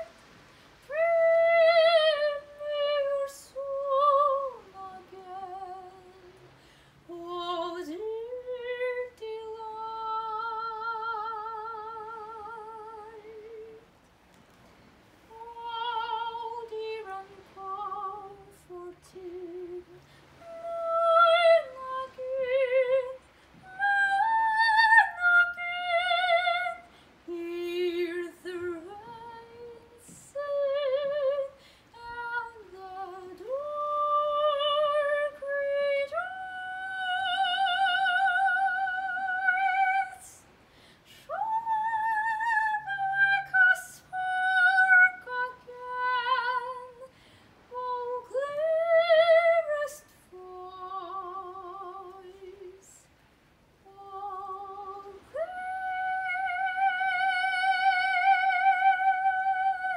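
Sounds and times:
woman singing classical soprano: 0:00.0 - 0:14.0, 0:15.3 - 0:53.2, 0:53.8 - 0:59.9.

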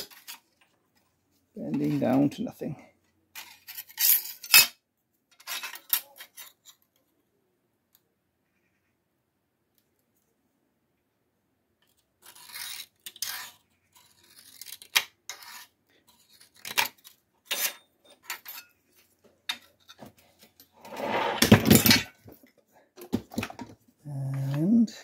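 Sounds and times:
metal plate scraping clatter: 0:20.7 - 0:22.2.

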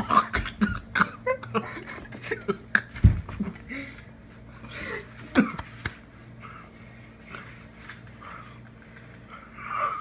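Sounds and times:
person breathing: 0:06.4 - 0:10.0.

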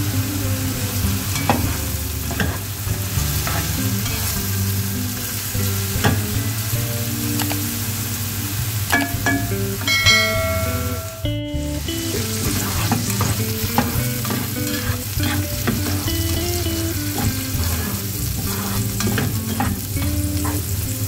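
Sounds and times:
onion sizzling in hot oil: 0:00.0 - 0:21.0
spatula scraping a pan: 0:01.6 - 0:04.4, 0:12.2 - 0:20.9.

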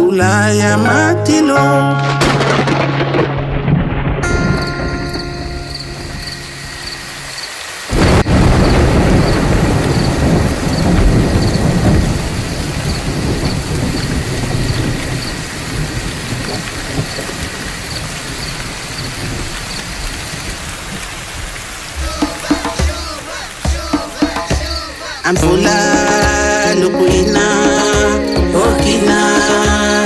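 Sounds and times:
thunder crack and rumble: 0:02.2 - 0:07.0, 0:07.9 - 0:21.5
steady rain: 0:02.2 - 0:30.0.

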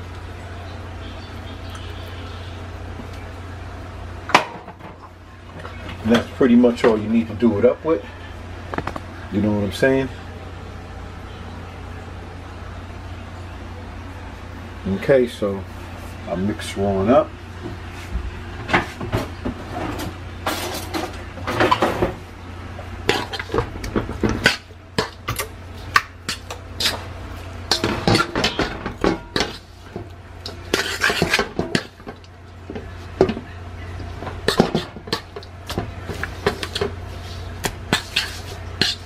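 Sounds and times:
fork clinking and scraping a pan: 0:23.1 - 0:23.6, 0:27.7 - 0:29.7, 0:30.4 - 0:32.1, 0:34.2 - 0:37.0, 0:37.9 - 0:39.0.

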